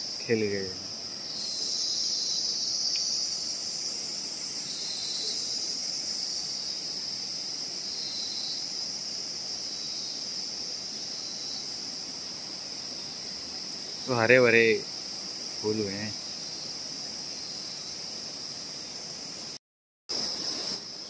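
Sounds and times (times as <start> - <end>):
insect chorus: 0.0 - 21.0.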